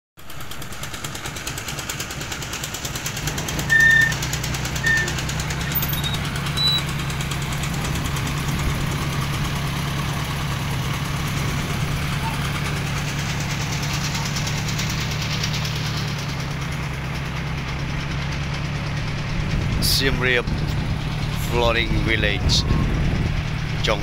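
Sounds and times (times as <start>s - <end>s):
boat engine drone: 0.2s - 24.0s
short high-pitched peeps: 3.7s - 4.2s, 4.8s - 6.9s.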